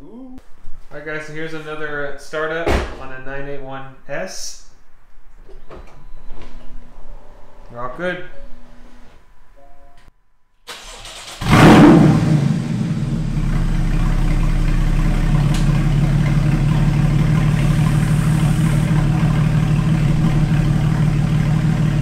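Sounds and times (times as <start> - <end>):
car engine cranking and starting: 10.7 - 22.0
car engine idling loudly: 11.5 - 22.0.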